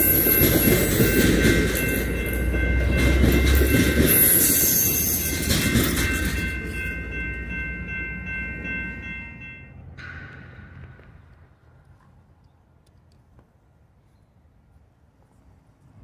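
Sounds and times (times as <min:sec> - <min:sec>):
high ringing tones: 0:00.0 - 0:10.2
train cars rolling on rails: 0:00.0 - 0:13.2.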